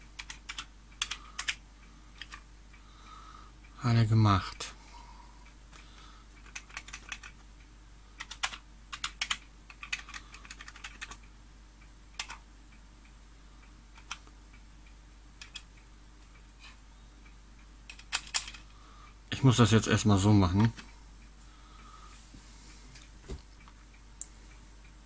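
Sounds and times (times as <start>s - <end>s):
computer keyboard key clicks: 0.2s - 1.6s, 2.2s - 2.4s, 6.4s - 7.4s, 8.2s - 11.2s, 12.2s - 12.4s, 14.0s - 14.2s, 15.4s - 15.7s, 17.9s - 18.6s.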